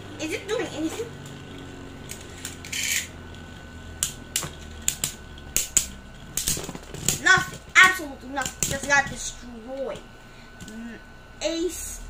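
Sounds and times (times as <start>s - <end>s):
spinning tops whirring on plastic: 0.0s - 11.6s
spinning tops clacking together: 2.0s - 3.4s.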